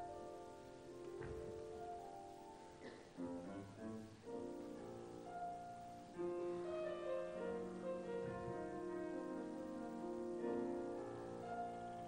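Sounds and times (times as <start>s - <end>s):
slow classical piano music: 0.0s - 12.0s.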